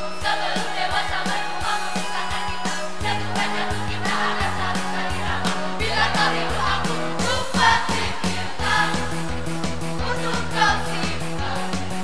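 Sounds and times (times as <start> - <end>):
choir singing: 0.0 - 9.1, 10.0 - 11.9
drums on steady beat: 0.0 - 12.0
bass line: 2.7 - 12.0.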